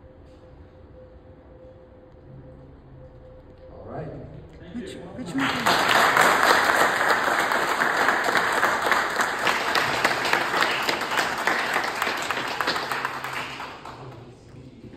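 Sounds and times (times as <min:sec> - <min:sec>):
audience applauding: 0:05.2 - 0:14.4.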